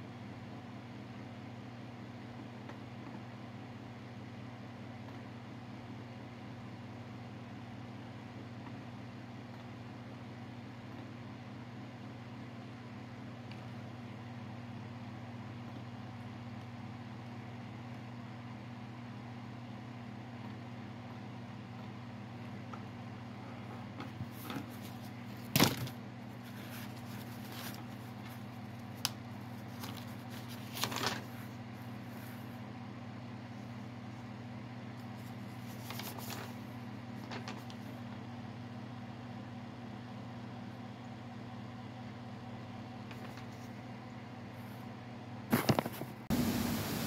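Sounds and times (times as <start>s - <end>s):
paper pages rustling: 24.2s - 32.5s, 35.2s - 38.0s.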